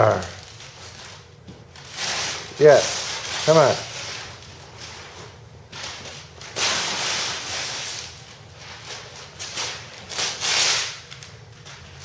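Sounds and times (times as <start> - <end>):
wrapping paper ripping and crumpling: 0.0 - 12.0.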